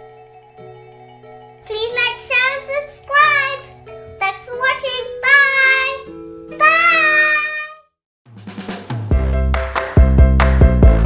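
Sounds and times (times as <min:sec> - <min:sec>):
light background music: 0:00.0 - 0:07.6
girl singing: 0:04.5 - 0:07.8.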